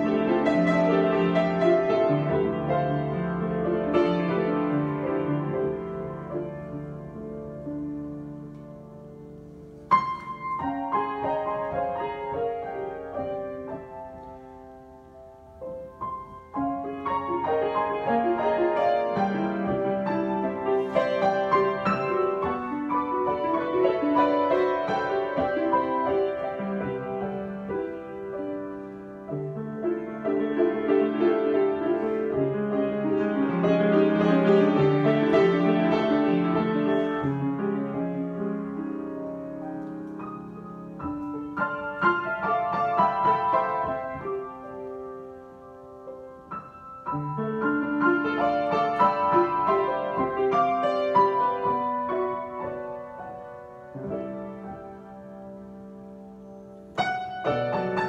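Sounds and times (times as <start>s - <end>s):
solo grand piano improvisation: 0.0s - 58.0s.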